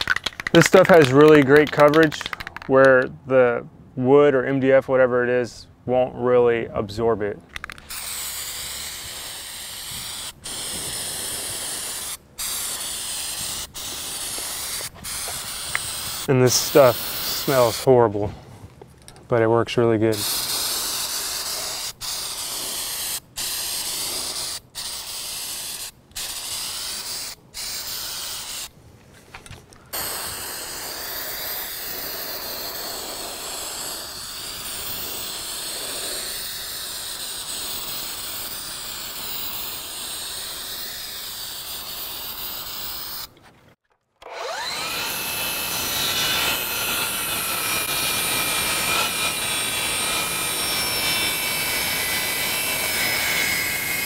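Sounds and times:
aerosol can spraying: 0:00.0 - 0:02.7, 0:07.6 - 0:17.9, 0:20.1 - 0:28.7, 0:29.9 - 0:43.3
miter saw cutting boards: 0:07.8 - 0:17.9, 0:29.9 - 0:43.4, 0:44.2 - 0:54.0.

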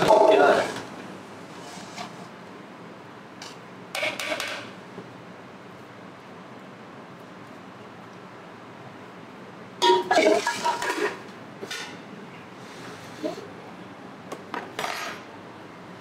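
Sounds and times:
metal utensils clattering: 0:09.8 - 0:12.0.

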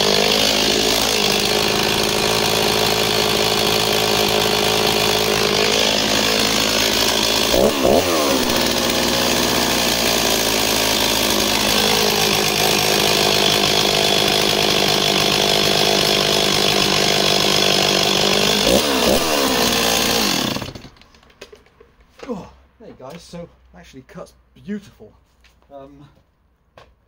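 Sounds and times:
chainsaw engine idling: 0:00.0 - 0:21.0.

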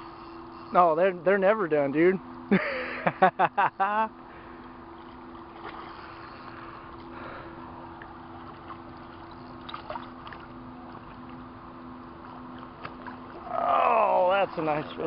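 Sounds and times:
low hum: 0:00.0 - 0:15.0
net splashing in water: 0:05.0 - 0:06.1, 0:08.4 - 0:11.4.

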